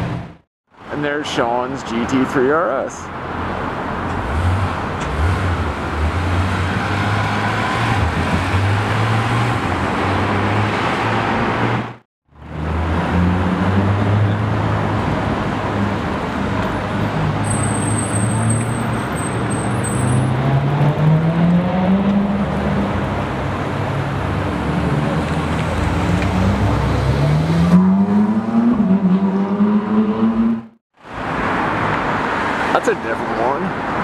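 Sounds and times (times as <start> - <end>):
sports car engine accelerating: 25.0 - 30.8.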